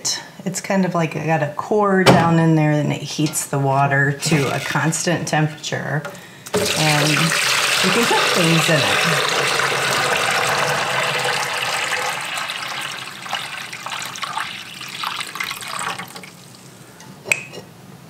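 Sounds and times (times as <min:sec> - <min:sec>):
water pouring and splashing: 0:06.5 - 0:16.6.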